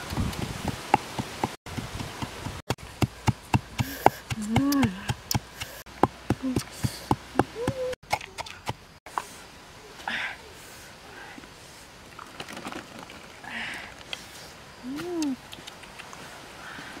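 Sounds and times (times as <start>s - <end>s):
pestle pounding in mortar: 0.4s - 8.8s
person humming: 3.8s - 5.3s, 7.4s - 8.0s, 14.8s - 15.4s.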